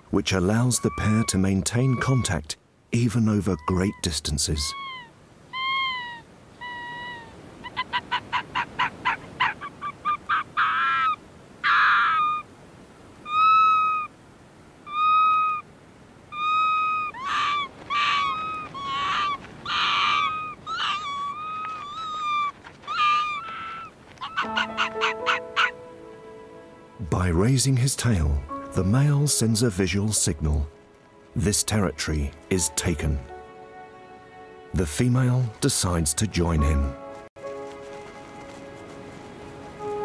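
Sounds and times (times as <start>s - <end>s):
foxes long calls: 0.5s - 2.4s, 3.5s - 12.5s, 13.2s - 14.2s, 14.8s - 15.7s, 16.3s - 25.8s
foxes yapping barks: 0.7s - 2.4s, 4.7s - 12.5s, 13.2s - 14.1s, 14.8s - 15.6s, 16.3s - 25.8s.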